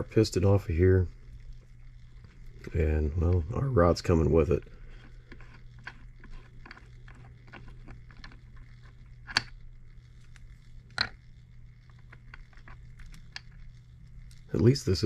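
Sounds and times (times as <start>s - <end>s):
faint metallic clicks and scrapes: 4.6s - 14.5s.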